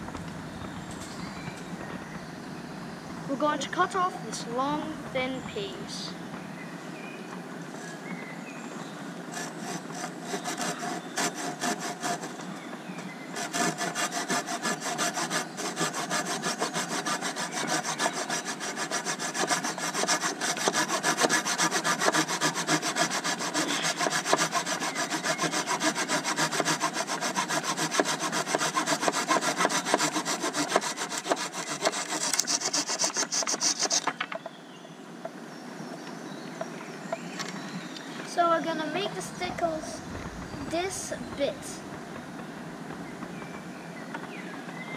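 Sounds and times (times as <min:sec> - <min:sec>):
saw cutting wood: 0:09.3 - 0:12.6, 0:13.3 - 0:34.4.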